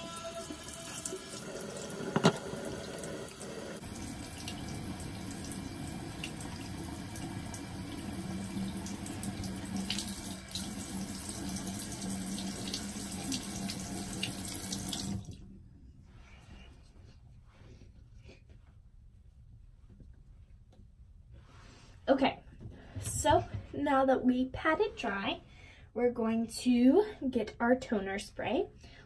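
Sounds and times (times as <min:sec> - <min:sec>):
tap running into basin: 0:00.6 - 0:15.3.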